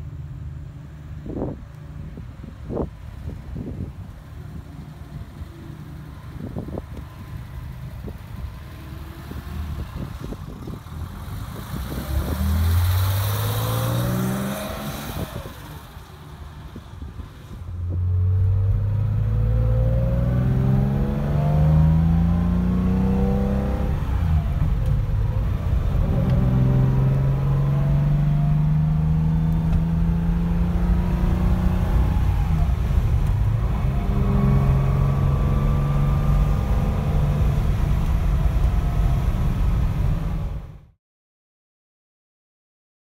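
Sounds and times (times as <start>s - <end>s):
car engine accelerating: 2.7s - 40.9s.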